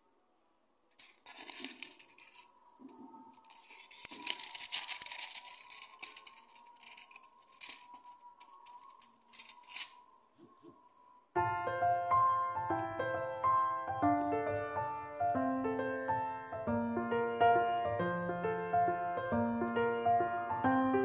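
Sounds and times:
aluminium foil crinkling and tearing: 0.9s - 10.0s.

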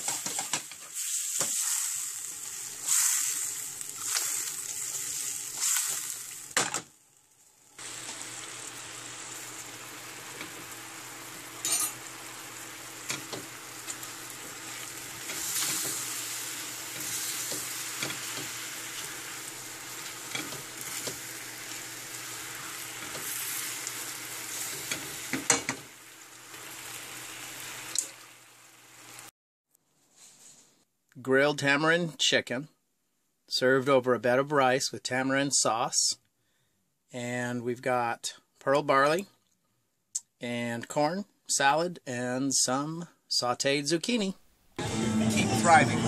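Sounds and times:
chicken sizzling in a skillet: 0.0s - 29.3s.

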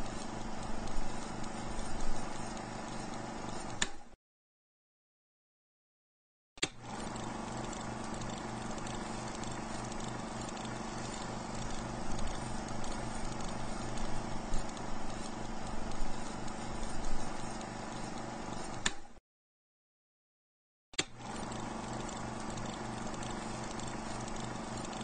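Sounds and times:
film projector whirring: 0.0s - 4.2s, 6.6s - 19.2s, 21.0s - 25.0s
projector switch click: 3.8s - 4.0s, 18.8s - 19.1s.

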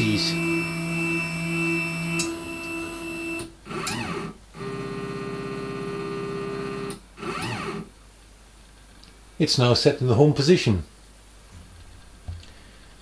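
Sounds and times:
stepper motors whining: 0.0s - 4.3s.

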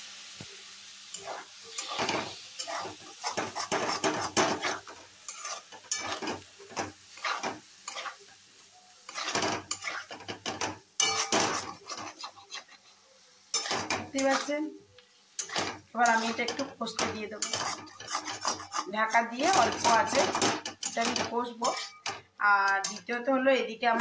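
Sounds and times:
spatula scraping metal pan: 1.1s - 8.3s, 9.1s - 14.7s, 15.4s - 23.3s.

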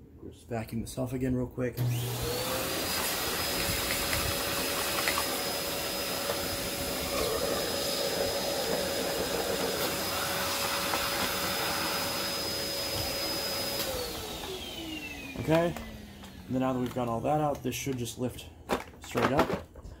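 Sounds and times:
vacuum cleaner running: 1.8s - 18.3s.

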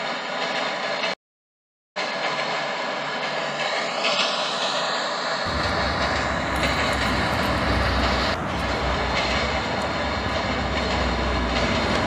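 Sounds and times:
vehicle noise rumbling roar: 2.0s - 12.0s
low hum: 5.5s - 12.0s.

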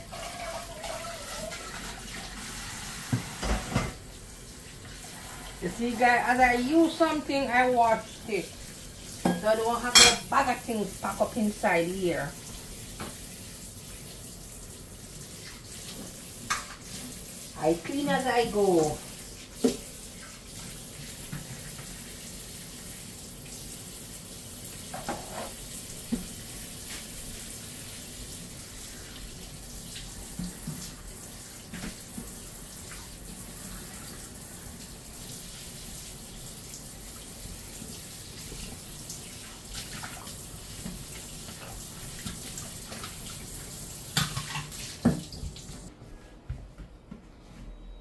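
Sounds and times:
dishes clinking and knocking: 9.2s - 10.3s.

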